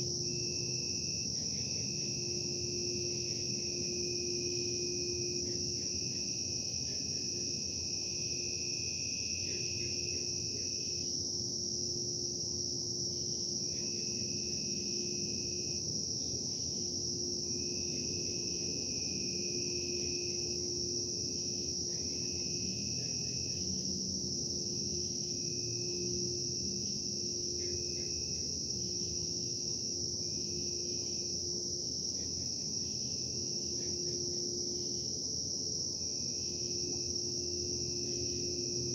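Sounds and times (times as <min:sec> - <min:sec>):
high-pitched whine: 0:00.0 - 0:07.8.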